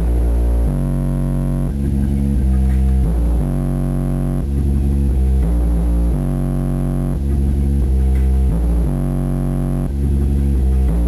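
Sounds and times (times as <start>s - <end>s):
bass-heavy music through subwoofers: 0.0s - 11.0s.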